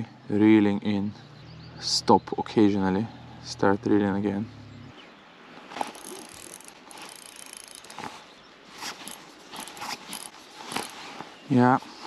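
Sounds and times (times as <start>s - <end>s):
fishing reel being cranked: 5.8s - 8.1s, 8.9s - 11.0s.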